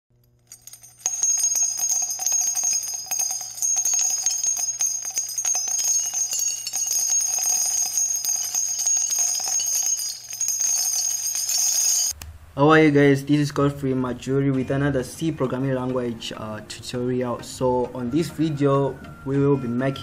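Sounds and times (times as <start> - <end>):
small bells shaking: 0.5 - 12.2.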